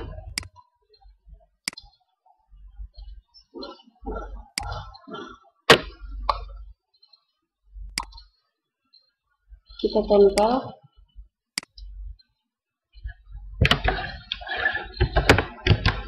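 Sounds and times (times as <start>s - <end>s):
computer mouse clicking: 0.0s - 0.6s, 1.6s - 2.1s, 4.5s - 5.0s, 7.9s - 8.4s, 11.6s - 12.3s.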